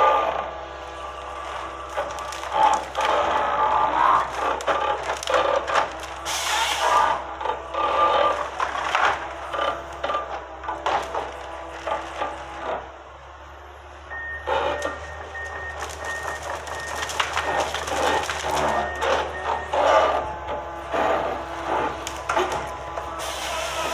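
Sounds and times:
harvester engine and hydraulics: 0.0s - 23.9s
wood knocking and cracking: 4.3s - 6.2s, 8.4s - 9.3s, 10.0s - 12.4s, 15.4s - 19.3s, 22.0s - 23.1s
reversing alarm beeping: 14.0s - 21.4s.

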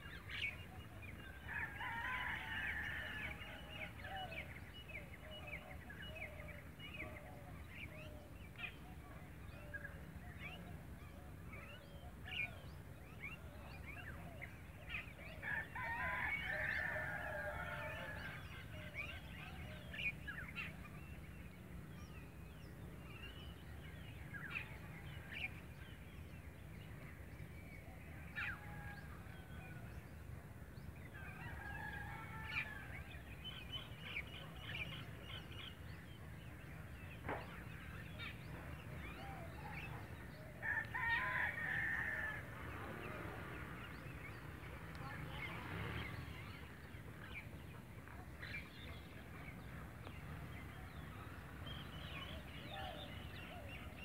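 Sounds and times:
distant fowl crowing: 39.5s - 43.2s.

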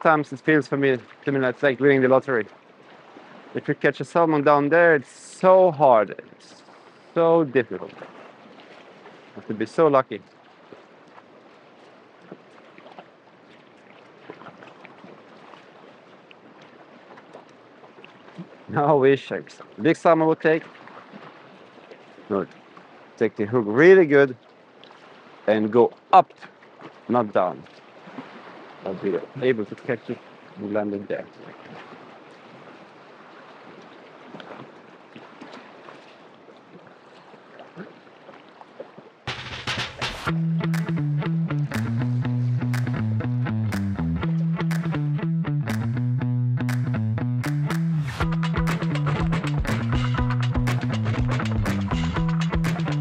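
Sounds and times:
faint ticks and splashes: 0.4s - 3.6s, 7.8s - 18.7s, 20.4s - 23.3s, 24.3s - 30.6s, 31.3s - 39.3s.

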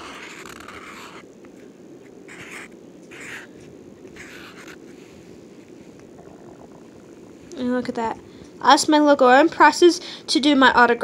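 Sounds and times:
marker drawing on paper: 0.0s - 1.2s, 2.3s - 3.5s, 4.1s - 4.9s.

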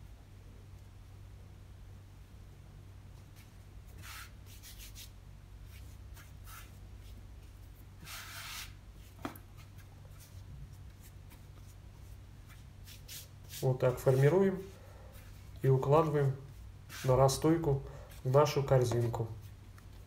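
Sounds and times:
hands brushing floured board: 5.7s - 20.0s.

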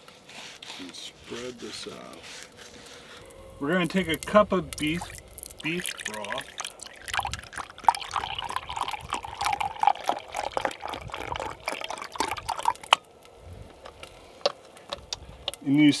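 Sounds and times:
broth pouring into a glass cup: 3.2s - 13.0s.

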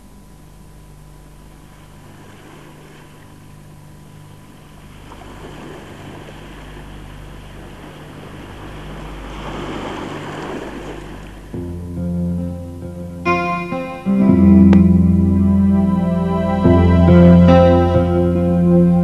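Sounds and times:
low steady hum: 0.0s - 19.0s
sea water sloshing and lapping: 1.6s - 11.5s.

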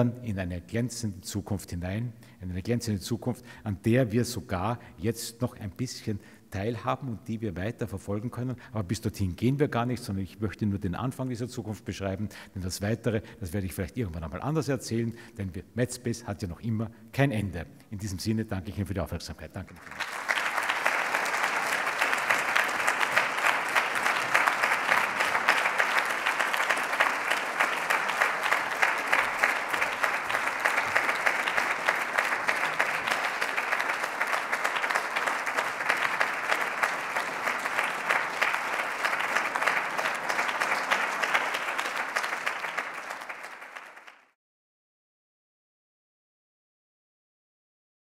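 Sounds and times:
audience applauding: 19.8s - 44.4s.

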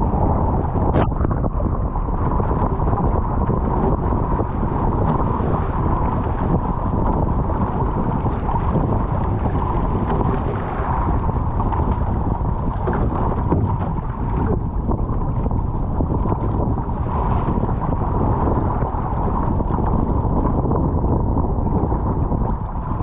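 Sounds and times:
water rushing along hull: 0.0s - 23.0s
wind buffeting microphone: 0.0s - 23.0s.

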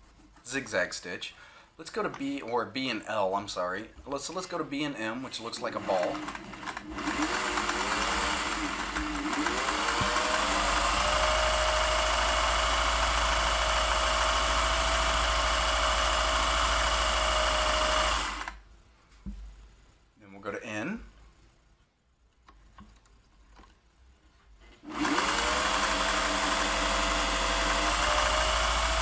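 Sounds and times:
sewing machine motor humming: 5.5s - 18.6s, 24.8s - 29.0s.

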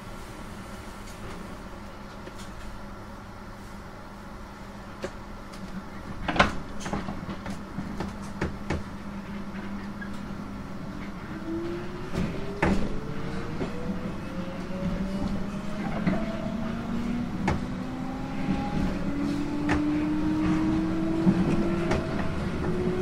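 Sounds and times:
train interior hum: 0.0s - 23.0s
rising traction motor tone: 11.2s - 23.0s.

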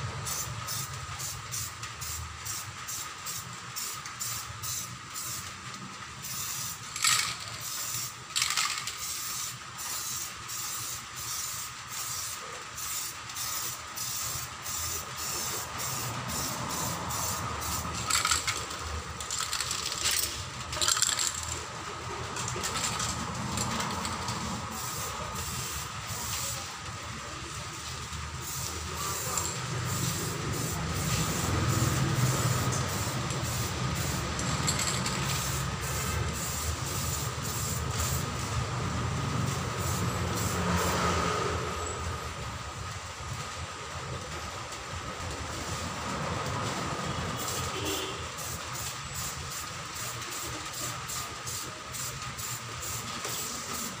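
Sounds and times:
low mechanical rumble: 0.0s - 40.6s
spray paint can hissing: 0.1s - 38.7s, 39.3s - 41.1s, 46.5s - 54.0s.

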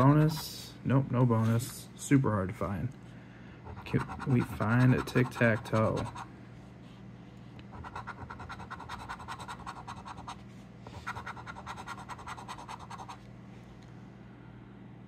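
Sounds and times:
coin scratching lottery ticket: 0.0s - 0.5s, 3.7s - 6.3s, 7.7s - 13.2s.

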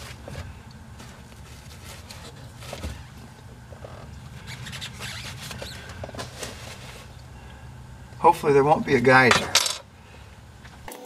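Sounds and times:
steady low hum: 0.0s - 10.9s
rubbing: 1.0s - 3.2s, 3.8s - 7.2s.

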